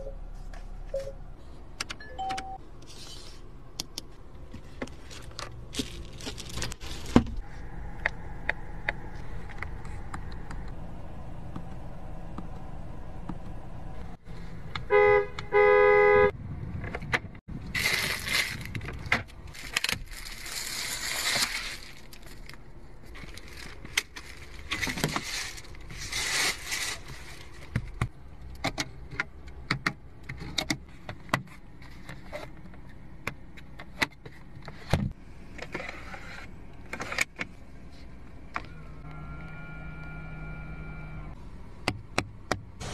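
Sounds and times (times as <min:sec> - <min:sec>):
plastic wrapping rustling: 0:04.9 - 0:07.4, 0:17.7 - 0:27.7
car horn: 0:14.8 - 0:16.4, 0:38.7 - 0:41.3
clicks and taps in car: 0:41.8 - 0:42.7.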